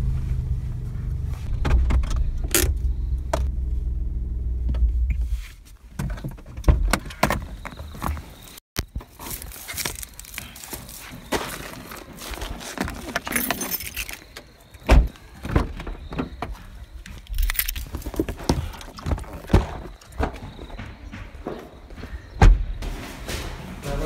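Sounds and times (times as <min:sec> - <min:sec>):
knocks clicks and rustles: 0:11.4 - 0:23.9
footsteps: 0:16.4 - 0:24.0.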